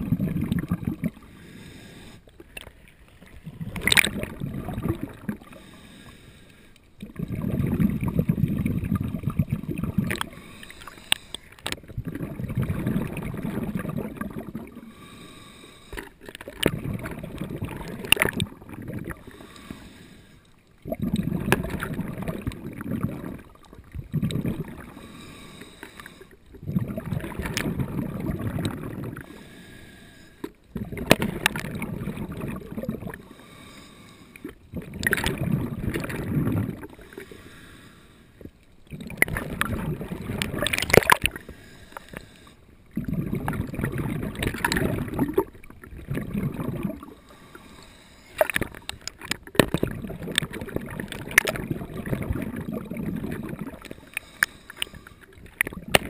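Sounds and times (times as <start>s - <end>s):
exhaled bubbles rushing: 0.0s - 1.3s, 3.2s - 5.6s, 7.0s - 10.9s, 11.6s - 14.9s, 16.4s - 19.4s, 20.8s - 25.0s, 26.5s - 29.3s, 30.7s - 33.2s, 34.4s - 37.2s, 38.8s - 41.4s, 42.9s - 47.2s, 48.4s - 53.9s, 55.3s - 56.0s
regulator inhales: 1.3s - 3.1s, 5.5s - 6.8s, 10.3s - 11.7s, 14.8s - 16.2s, 19.2s - 20.6s, 24.9s - 26.5s, 29.3s - 30.6s, 33.2s - 34.6s, 36.9s - 38.4s, 41.3s - 42.7s, 47.1s - 49.1s, 53.8s - 55.4s.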